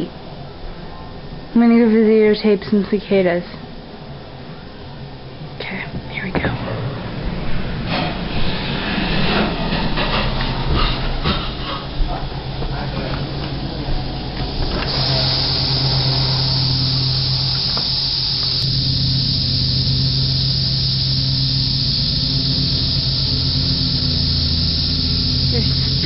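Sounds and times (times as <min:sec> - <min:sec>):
low steady hum: 0:00.0 - 0:26.0
cicadas chorus: 0:10.0 - 0:26.0.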